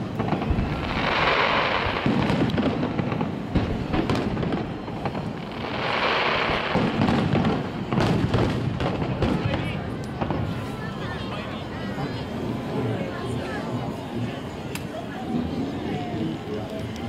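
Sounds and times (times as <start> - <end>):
fireworks hissing: 0.0 - 11.3.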